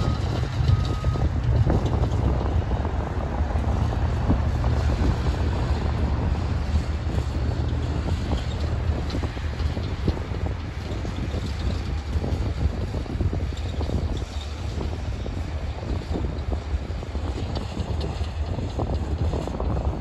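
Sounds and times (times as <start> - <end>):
freight train rumbling and clattering: 0.0 - 20.0
wind buffeting microphone: 0.0 - 20.0.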